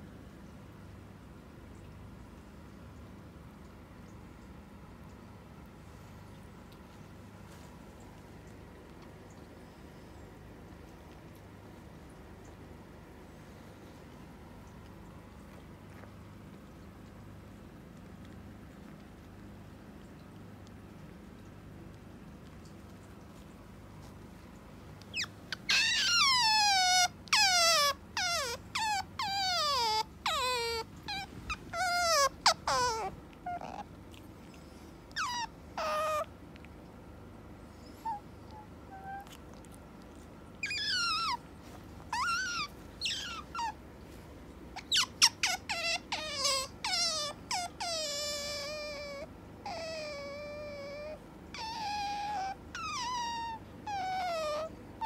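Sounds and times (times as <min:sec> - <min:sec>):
otter squealing: 0:25.1 - 0:33.9, 0:42.1 - 0:43.8
faint otter peeps: 0:42.2 - 0:43.8.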